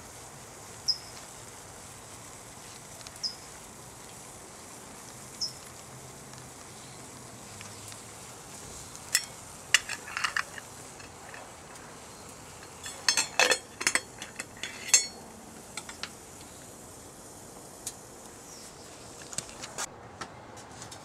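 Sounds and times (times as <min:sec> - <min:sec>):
water boiling in metal pot: 0:00.0 - 0:19.8
metallic clinks of pot: 0:09.1 - 0:11.5, 0:12.6 - 0:15.2.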